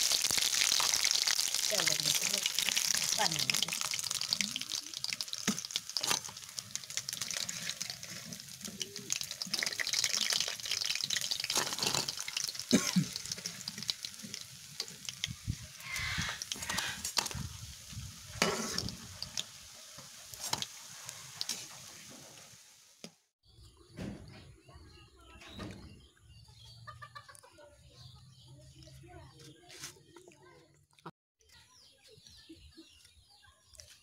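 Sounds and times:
hot oil sizzling: 0.0 - 23.3.

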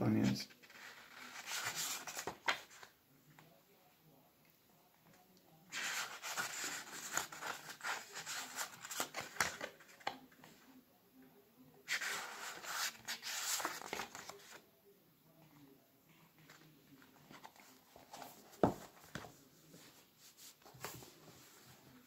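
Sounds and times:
book pages rustling: 0.5 - 3.5, 5.1 - 10.6, 11.8 - 14.6, 15.4 - 22.0
book set down on table: 18.0 - 19.3.

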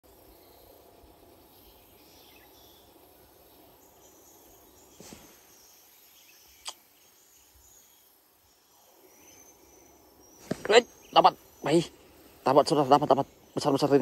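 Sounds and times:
insects chirping: 0.0 - 14.0
soft thump: 5.0 - 5.4.

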